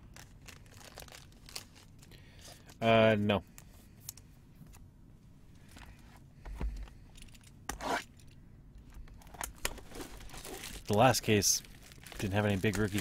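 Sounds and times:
plastic wrap rustling: 0:00.0 - 0:02.8, 0:09.6 - 0:13.0.

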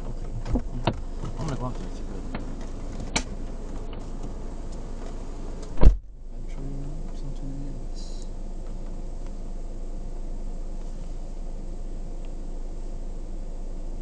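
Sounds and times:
low hum inside car cabin: 0:00.0 - 0:14.0
loud thump: 0:05.7 - 0:06.1.

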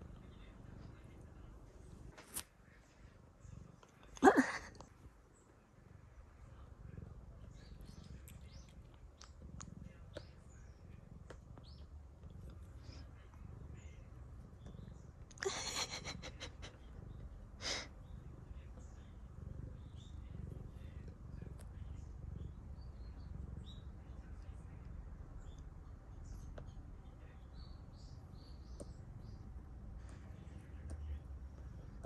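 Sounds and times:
cat purring: 0:00.0 - 0:32.0.

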